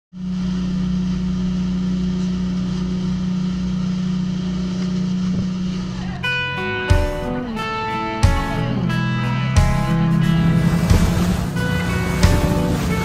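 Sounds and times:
boat engine drone: 0:00.1 - 0:13.0
water rushing past hull: 0:00.2 - 0:13.0
guitar music: 0:05.1 - 0:13.0.

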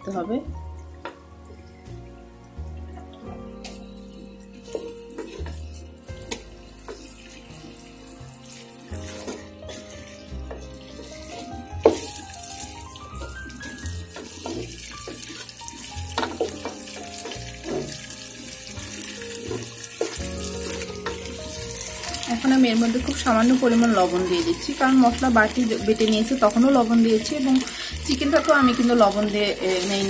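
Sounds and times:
background music: 0:00.0 - 0:30.0
food sizzling in a pot: 0:00.0 - 0:30.0
spatula scraping a pot: 0:03.6 - 0:12.8, 0:13.4 - 0:25.2.

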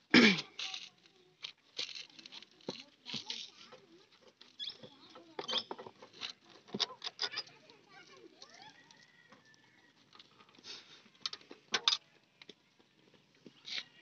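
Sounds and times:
faint birds chirping: 0:07.5 - 0:14.0.

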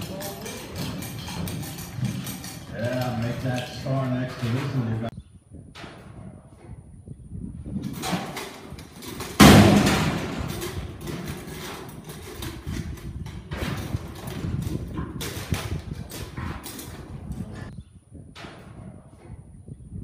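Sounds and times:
bull bucking on dirt: 0:00.0 - 0:04.8, 0:07.6 - 0:17.7
metal gate crashing open: 0:00.0 - 0:05.0, 0:07.9 - 0:17.1.

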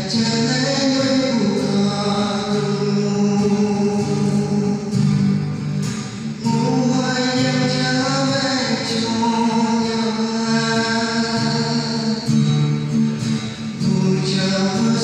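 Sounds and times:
man singing long notes: 0:00.0 - 0:05.4, 0:06.4 - 0:12.4
guitar playing: 0:00.0 - 0:15.0.

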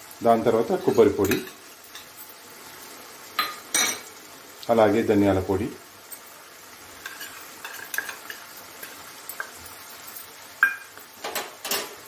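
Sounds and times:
curry simmering in pan: 0:00.0 - 0:12.0
spoon clicking and scraping: 0:07.0 - 0:09.6.

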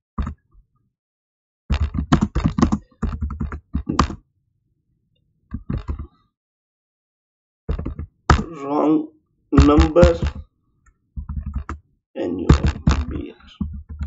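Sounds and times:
typing on computer keyboard: 0:01.7 - 0:04.2, 0:09.6 - 0:10.4, 0:11.2 - 0:11.8.

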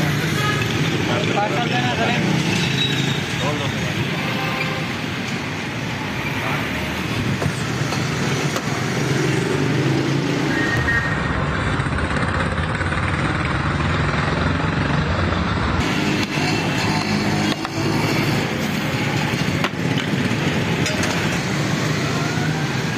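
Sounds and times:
roadside traffic: 0:00.0 - 0:22.9
vehicle engine running close: 0:06.4 - 0:22.9.

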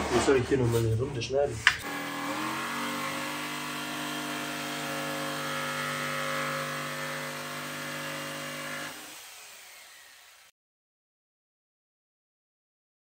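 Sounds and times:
jigsaw cutting plywood: 0:01.8 - 0:10.5
motor winding down whine: 0:01.8 - 0:10.5.

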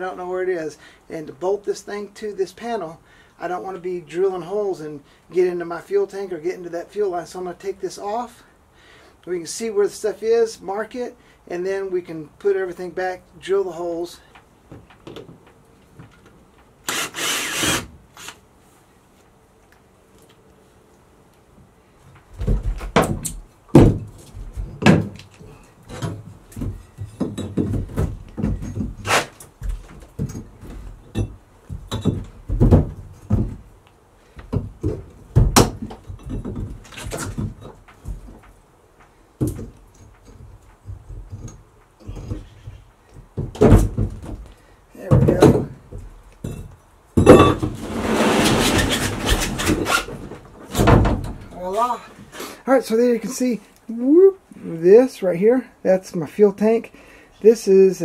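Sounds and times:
panel scraping and rattling: 0:47.3 - 0:51.5.

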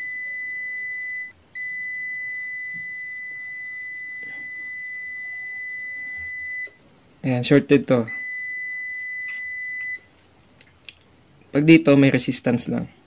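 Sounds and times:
meter continuity beep: 0:00.0 - 0:06.8, 0:08.1 - 0:10.1.

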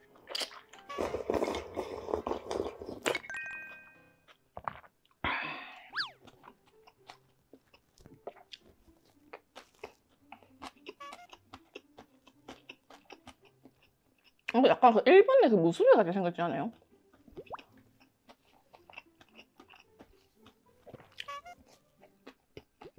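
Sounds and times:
soft crunchy chewing: 0:00.0 - 0:03.1, 0:06.0 - 0:14.6, 0:16.7 - 0:22.9
slurping broth: 0:00.3 - 0:03.2
whistle-like sound effect: 0:05.9 - 0:06.2.

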